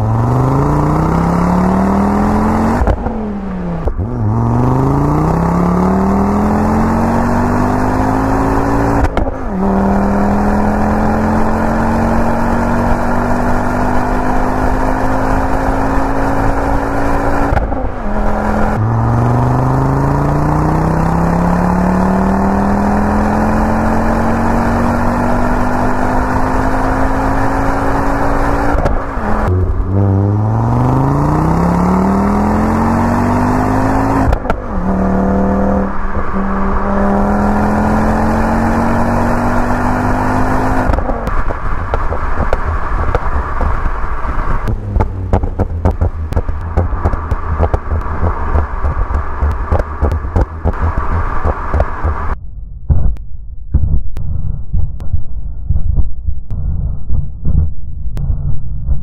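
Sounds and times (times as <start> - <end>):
car engine accelerating: 0.0 - 52.4.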